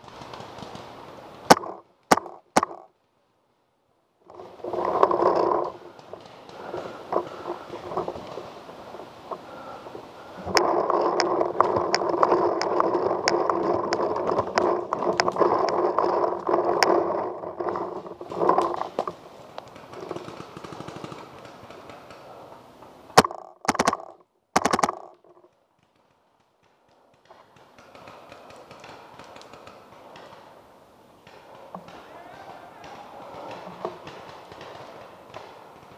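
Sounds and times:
sharp cracks: 0.0s - 3.1s, 4.2s - 35.9s
rustling on forest floor: 4.3s - 22.6s.

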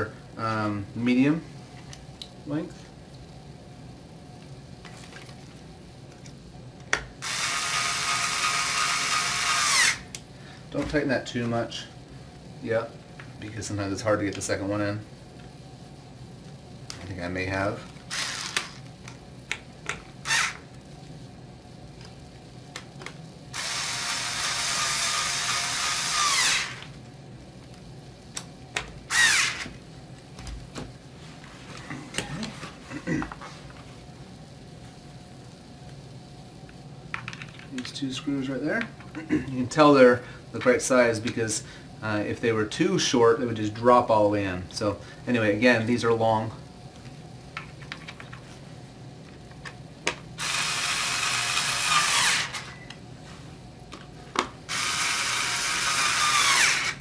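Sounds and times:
electric screwdriver whirring: 7.2s - 10.0s, 18.1s - 18.8s, 20.2s - 20.6s, 23.6s - 26.9s, 29.1s - 29.8s, 50.4s - 52.8s, 54.7s - 57.0s.

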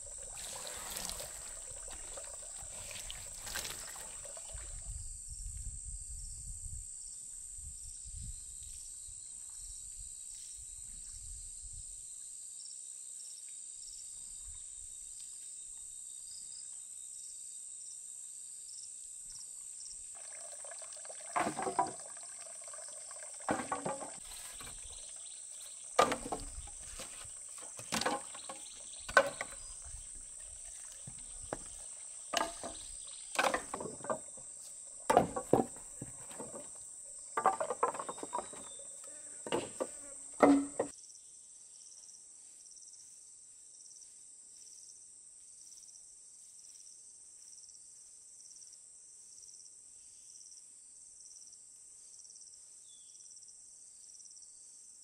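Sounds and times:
high-pitched insect chorus: 0.0s - 23.3s
sharp knocks and clatters: 21.4s - 22.1s, 23.5s - 24.9s, 26.0s - 30.0s, 31.1s - 40.9s.

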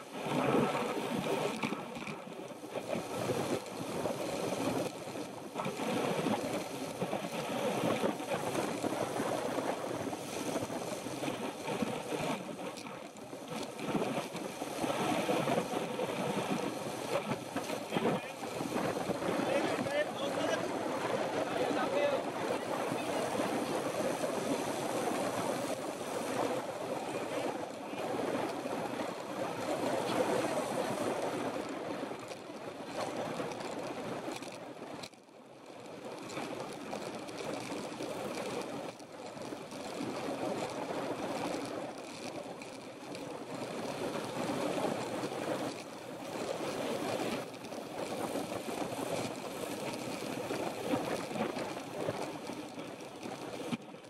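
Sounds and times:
wind buffeting microphone: 0.0s - 35.0s
bike tyre noise on asphalt: 0.0s - 54.0s.

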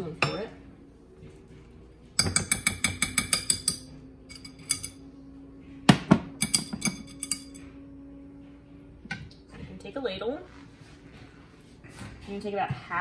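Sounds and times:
spoon clinking against glass bowl: 2.2s - 5.0s, 6.4s - 7.6s.

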